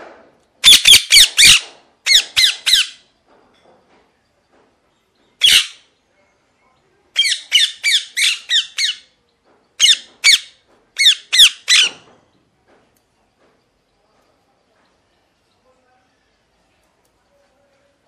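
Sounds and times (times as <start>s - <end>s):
parakeet squawking: 0.6s - 3.0s, 5.4s - 5.8s, 7.2s - 9.1s, 9.8s - 12.0s.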